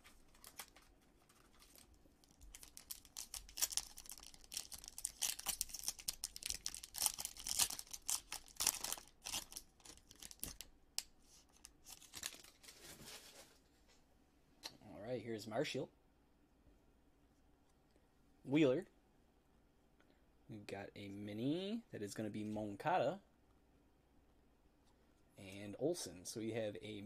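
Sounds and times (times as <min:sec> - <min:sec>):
foil wrapper tearing and crinkling: 0:00.0 - 0:10.7, 0:11.6 - 0:12.7.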